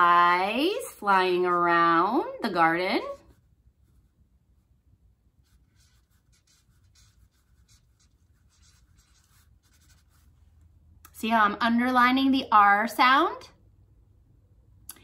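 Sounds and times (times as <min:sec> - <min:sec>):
marker writing strokes: 0:05.4 - 0:10.4.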